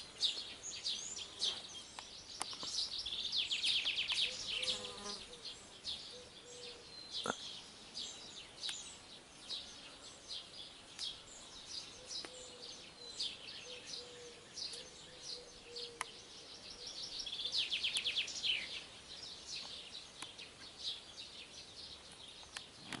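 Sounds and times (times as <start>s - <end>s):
songbirds chirping: 0.0s - 23.0s
bird trill: 2.7s - 8.2s, 11.0s - 19.4s.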